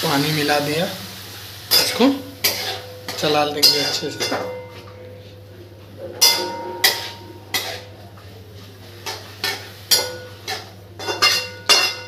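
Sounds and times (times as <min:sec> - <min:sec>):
metal spatula scraping metal pan: 0:01.7 - 0:04.8, 0:06.2 - 0:07.9, 0:09.0 - 0:12.0.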